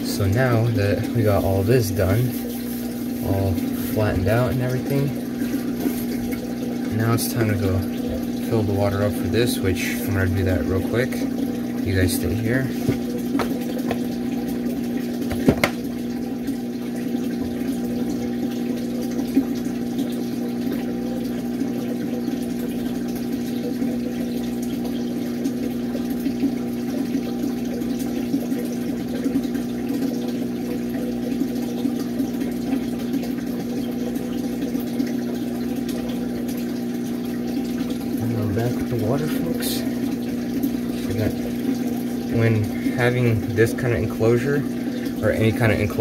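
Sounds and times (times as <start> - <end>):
low mechanical hum: 0.0 - 46.0
brief knock: 15.3 - 15.8.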